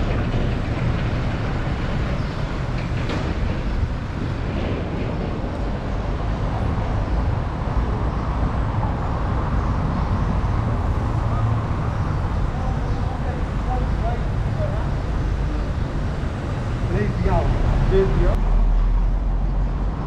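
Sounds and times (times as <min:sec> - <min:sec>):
moving vehicle rumble: 0:00.0 - 0:20.0.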